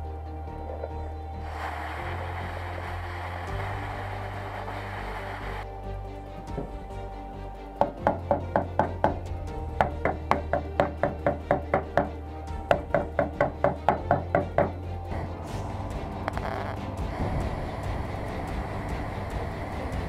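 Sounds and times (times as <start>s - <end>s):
background music: 0.0s - 20.0s
hammer tapping on steel: 7.8s - 9.2s, 9.8s - 12.1s, 12.7s - 14.8s.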